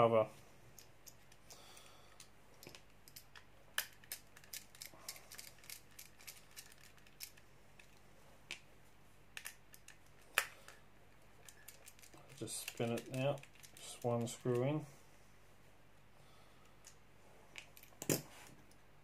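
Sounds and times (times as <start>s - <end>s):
small parts being handled: 0.7s - 8.6s, 9.4s - 10.8s, 11.4s - 14.7s.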